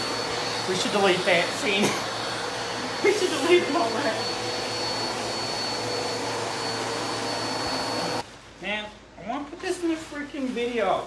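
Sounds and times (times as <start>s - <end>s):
vacuum cleaner running: 0.0s - 8.3s.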